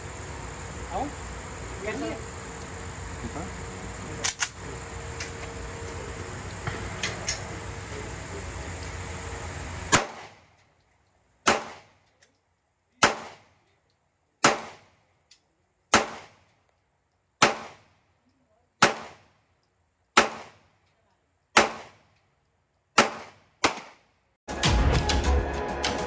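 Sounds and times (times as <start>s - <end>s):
pistol shots with echo: 9.9s - 10.4s, 11.4s - 12.0s, 13.0s - 13.6s, 14.4s - 14.9s, 15.9s - 16.4s, 17.4s - 17.9s, 18.8s - 19.3s, 20.2s - 20.6s, 21.6s - 22.0s, 23.0s - 24.0s.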